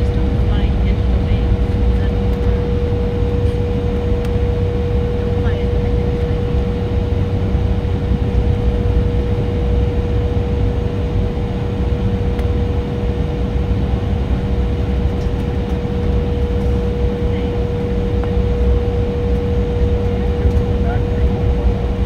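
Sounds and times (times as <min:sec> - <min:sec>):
jet cabin rumble: 0:00.0 - 0:22.0.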